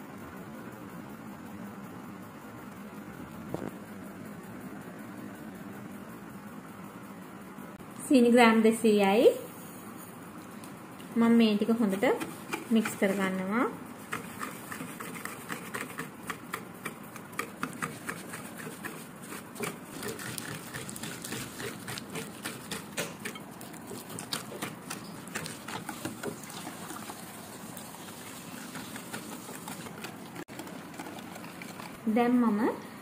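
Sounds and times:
whisk scraping against bowl: 11.6 - 32.2.

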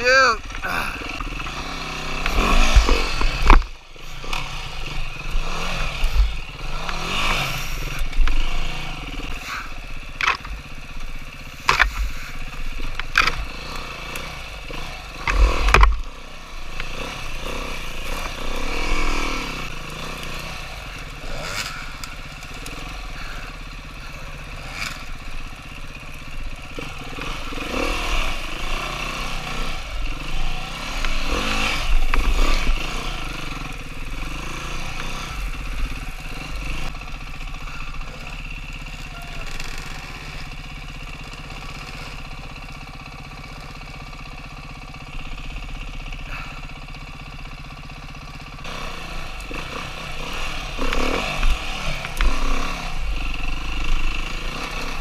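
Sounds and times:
dirt bike engine revving: 0.0 - 55.0
heavy thumps and clatter: 2.2 - 4.4, 15.2 - 16.1.

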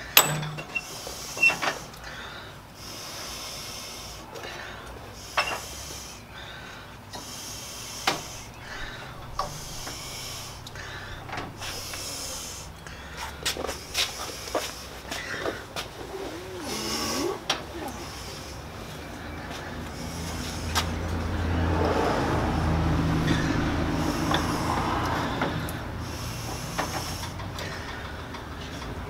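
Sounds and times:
sharp metal clinks: 0.0 - 1.0.

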